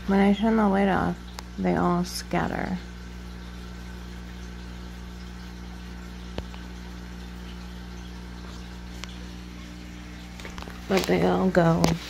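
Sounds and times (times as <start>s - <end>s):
air pump humming: 2.5s - 12.0s
air stone bubbling: 2.8s - 12.0s
small click: 6.3s - 6.7s.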